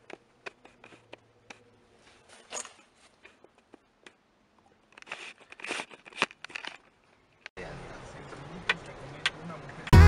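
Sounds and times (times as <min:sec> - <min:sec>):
camera handling clicks and rustles: 0:04.9 - 0:07.5.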